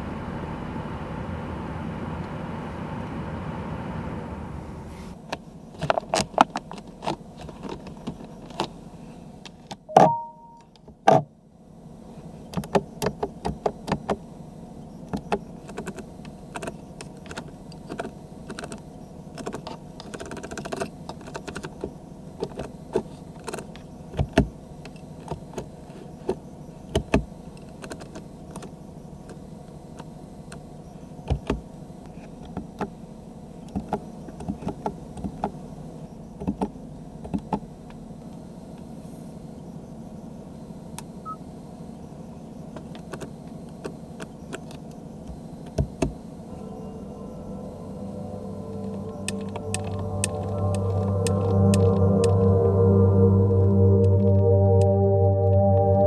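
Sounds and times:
buttons clicking: 9.9 - 10.7
short electronic beep: 9.9 - 10.7, 46.5 - 56.0.

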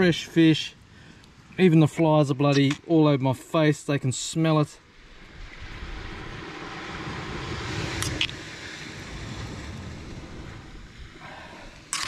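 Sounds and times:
surf: 1.5 - 12.0
wind rushing: 5.1 - 11.9.

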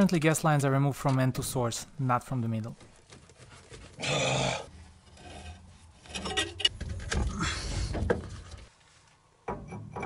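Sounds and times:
rustling and scraping on pipe: 2.8 - 4.0, 4.7 - 9.3.

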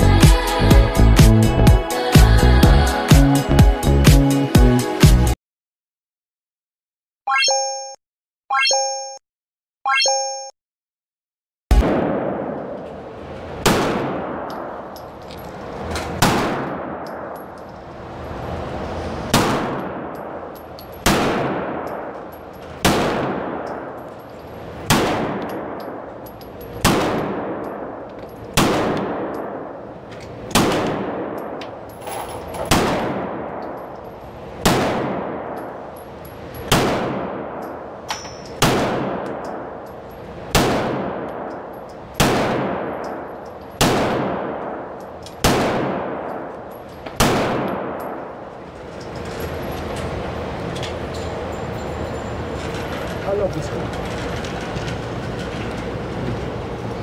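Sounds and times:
pistol shots with echo: 11.7 - 13.0, 13.6 - 15.0, 16.2 - 17.6, 19.3 - 24.1, 24.8 - 26.1, 26.8 - 29.9, 30.5 - 31.7, 32.6 - 33.9, 34.6 - 35.9, 36.7 - 39.8, 40.5 - 48.5.

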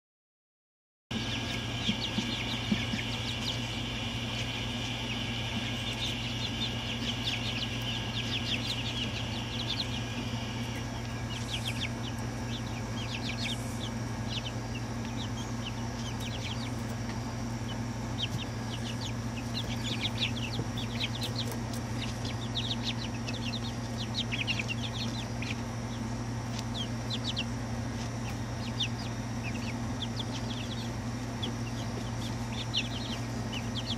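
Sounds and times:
chicks peeping and chirping: 1.1 - 33.9
steady low hum: 1.1 - 33.9.

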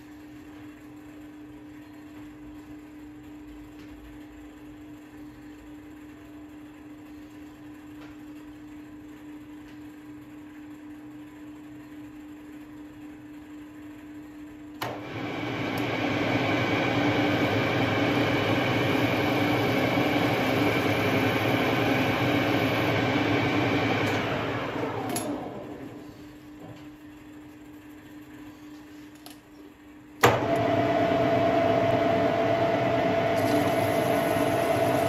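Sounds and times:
steady low hum: 0.0 - 35.0
lathe spindle gear whine: 14.8 - 26.0, 30.3 - 35.0.

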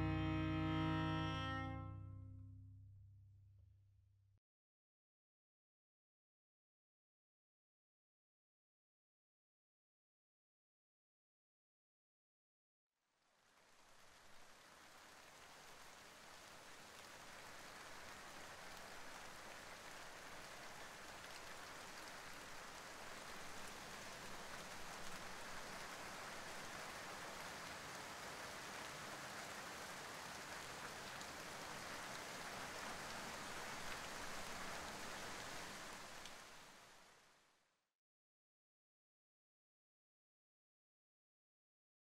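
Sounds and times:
hiss of rain falling: 13.2 - 37.5.

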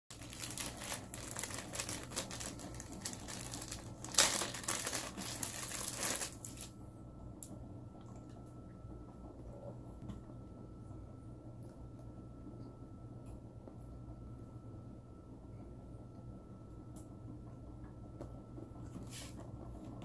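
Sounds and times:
plastic bag crinkling: 0.1 - 6.7.

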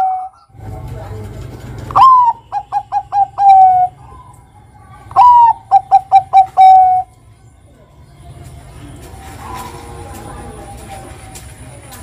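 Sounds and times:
dove cooing: 1.8 - 7.1, 9.2 - 11.4.

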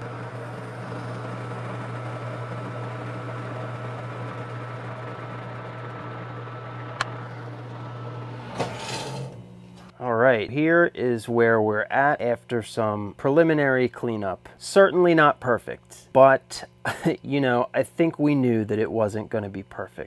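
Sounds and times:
lathe cutting hiss: 0.0 - 9.9
metal lathe motor hum: 0.0 - 9.9.

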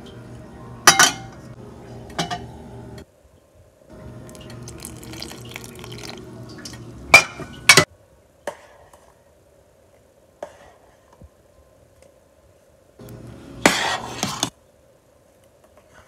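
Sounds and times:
liquid pouring into pot: 4.2 - 6.8.

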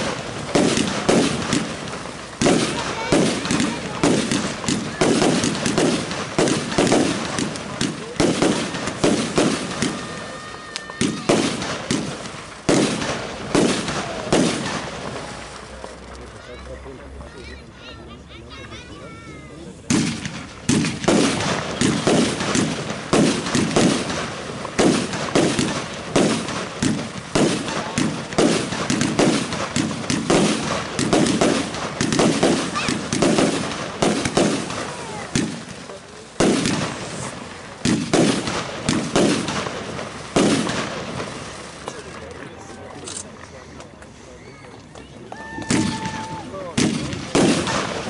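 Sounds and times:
fireworks barrage: 0.0 - 48.0.

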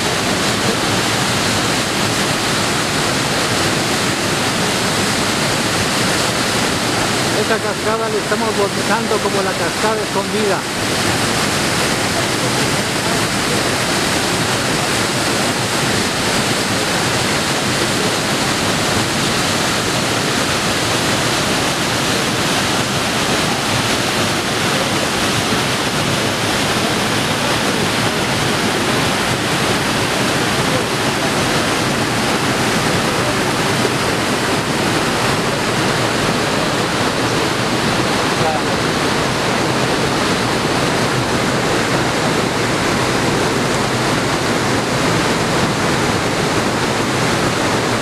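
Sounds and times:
small waterfall plunging into pool: 0.0 - 48.0
stream rushing over boulders: 0.0 - 48.0.

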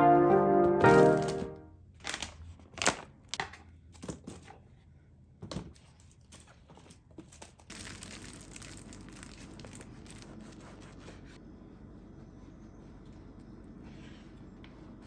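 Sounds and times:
crinkling and rustling: 0.8 - 4.7, 5.4 - 10.2.

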